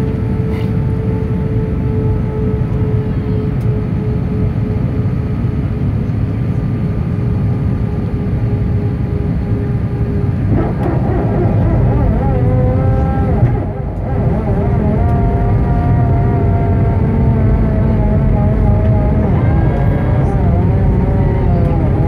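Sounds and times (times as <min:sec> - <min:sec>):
aircraft cabin engine rumble: 0:00.0 - 0:22.0
faint steady whine: 0:00.0 - 0:22.0
wavering high whining tones: 0:10.0 - 0:22.0.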